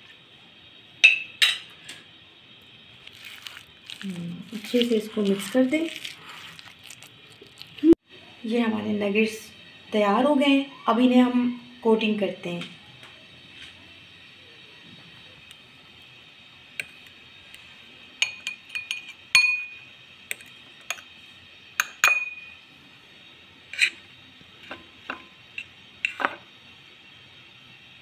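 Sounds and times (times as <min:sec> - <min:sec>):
metal fork clinking on glass bowl: 0:18.2 - 0:19.8.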